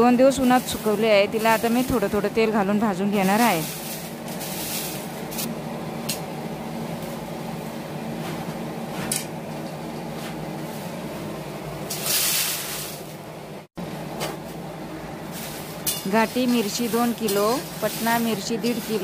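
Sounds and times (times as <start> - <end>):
dried chillies sliding into pan: 3.2 - 5.5, 15.3 - 19.0.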